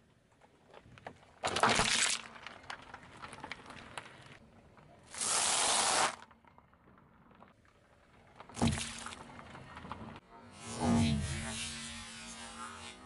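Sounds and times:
car tyre crushing plastic cups: 0:00.4 - 0:10.2.

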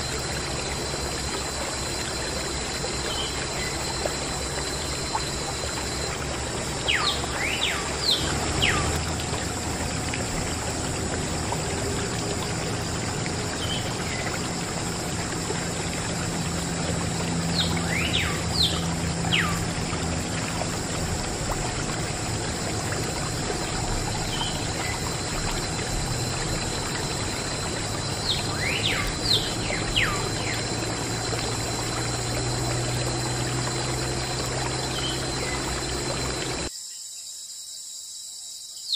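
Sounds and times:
bird whistling song: 0:03.0 - 0:06.1, 0:06.7 - 0:09.0, 0:17.4 - 0:19.8, 0:28.0 - 0:30.8, 0:33.8 - 0:36.4.

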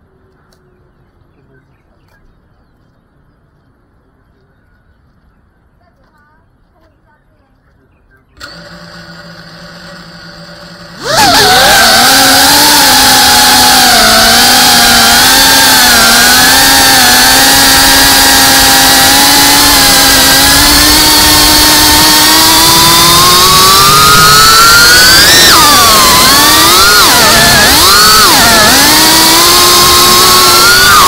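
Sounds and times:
drone motors buzzing whine: 0:08.4 - 0:31.0.

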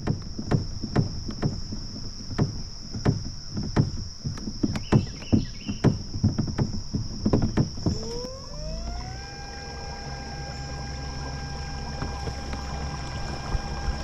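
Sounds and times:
sharp knocks: 0:00.0 - 0:08.0
electric motor whine: 0:07.8 - 0:14.0.

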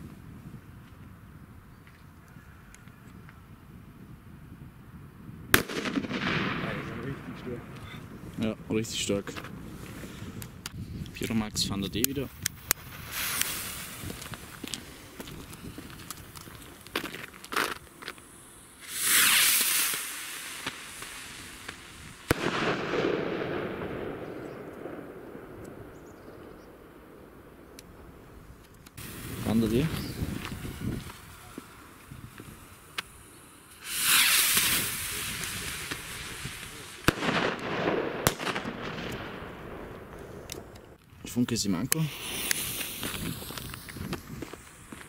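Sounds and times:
firework bang: 0:05.5 - 0:07.8, 0:18.8 - 0:26.9, 0:33.8 - 0:40.2, 0:42.1 - 0:45.0
faint crackles: 0:05.6 - 0:45.0
firework rocket whoosh: 0:12.6 - 0:26.4, 0:29.0 - 0:40.4, 0:41.9 - 0:45.0.

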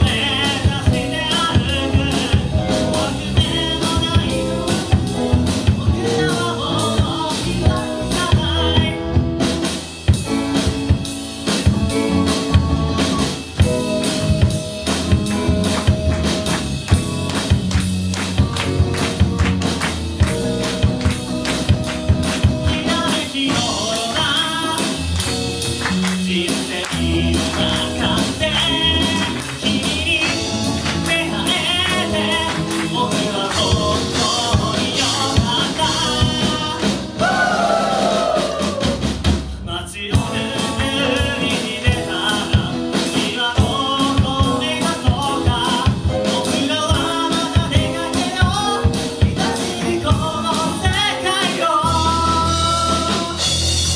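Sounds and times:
lead singer singing: 0:00.0 - 0:09.3, 0:22.2 - 0:53.6
live band playing: 0:00.0 - 0:53.9.

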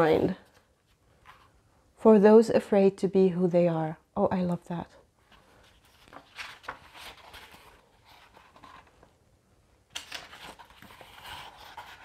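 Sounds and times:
riffle of pages: 0:05.3 - 0:09.1, 0:09.9 - 0:12.0
book pages turning: 0:05.3 - 0:09.2, 0:09.9 - 0:12.0.

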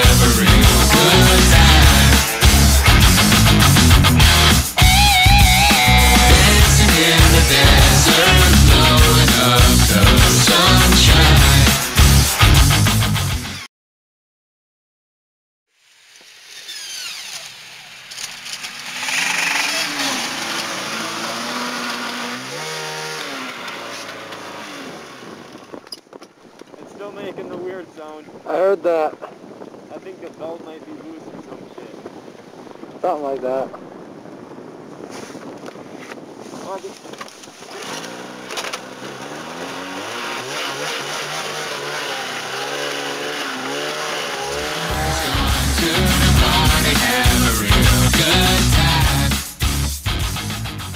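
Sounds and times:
snowmobile engines running: 0:00.0 - 0:13.6, 0:16.2 - 0:26.0, 0:35.1 - 0:49.5
snowmobile track noise: 0:00.0 - 0:13.6, 0:16.1 - 0:26.0, 0:35.0 - 0:49.6
wind: 0:15.7 - 0:45.0.

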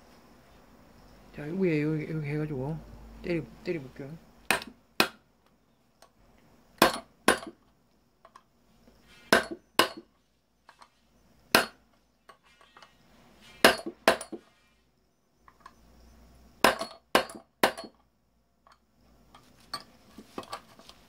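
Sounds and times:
hammer striking metal: 0:06.8 - 0:07.5, 0:09.3 - 0:10.0, 0:11.6 - 0:11.8.

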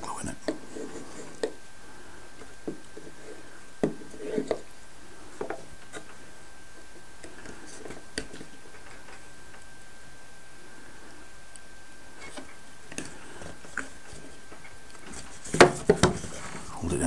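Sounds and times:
faint high-pitched whine: 0:00.0 - 0:17.0
wooden parts tapping and knocking: 0:15.0 - 0:16.5.

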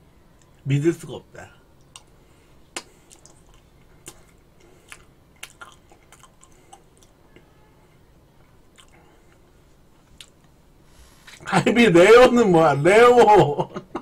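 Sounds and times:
soft chewing: 0:01.7 - 0:11.5.

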